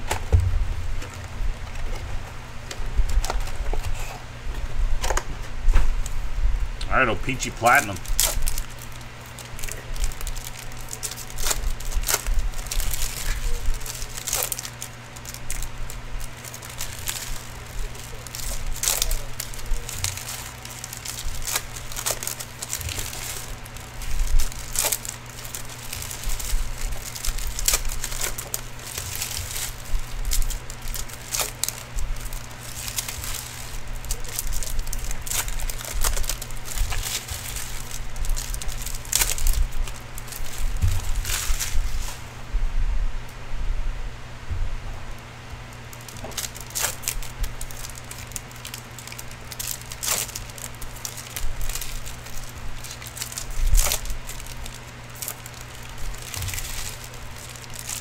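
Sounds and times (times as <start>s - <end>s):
foil wrappers crinkling and tearing: 0.0s - 4.1s, 6.8s - 42.3s, 45.6s - 58.0s
low electrical hum: 0.0s - 58.0s
cards rustling: 6.9s - 42.3s, 45.7s - 58.0s.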